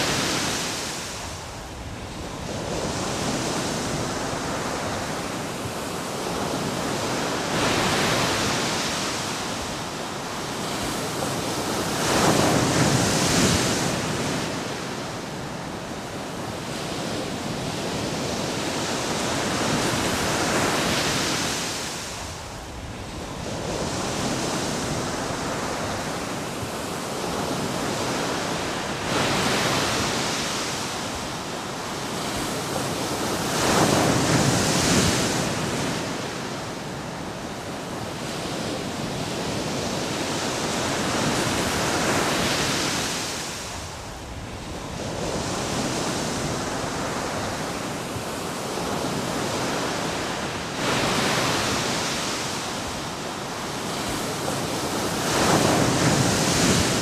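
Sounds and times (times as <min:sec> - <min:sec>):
ocean surf breaking: 0:44.6 - 0:57.0.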